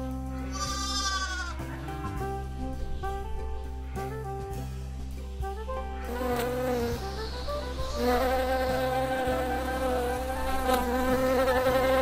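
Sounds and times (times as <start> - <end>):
honeybee buzzing: 0.0 - 12.0.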